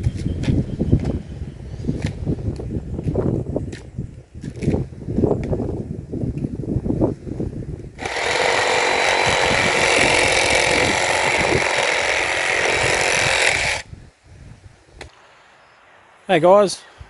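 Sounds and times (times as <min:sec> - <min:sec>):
chainsaw cutting wood: 0:08.0 - 0:13.9.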